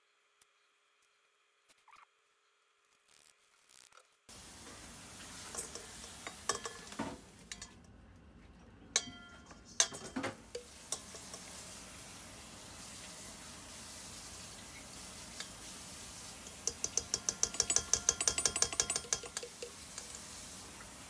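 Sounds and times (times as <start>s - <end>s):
faint steady hiss: 2.9s - 21.0s
spoon clinking against metal bowl: 5.5s - 7.8s, 9.0s - 11.4s, 16.6s - 20.1s.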